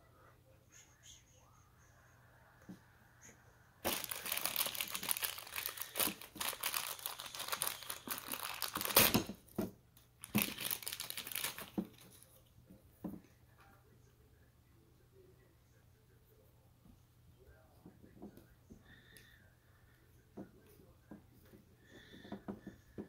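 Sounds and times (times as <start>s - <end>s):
wrapping crumpling and tearing: 3.8s - 9.4s, 10.2s - 12.3s.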